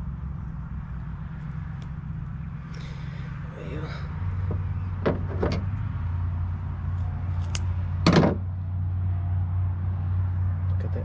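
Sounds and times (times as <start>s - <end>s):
steady low hum: 0.0s - 11.0s
sharp knocks: 4.4s - 5.7s, 8.0s - 8.4s.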